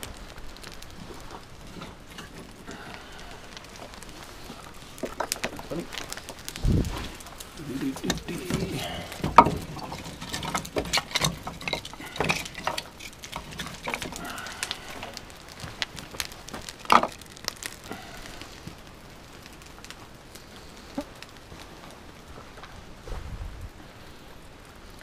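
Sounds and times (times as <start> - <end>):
campfire crackling: 0.0 - 25.0
wooden sticks clattering: 1.0 - 18.1.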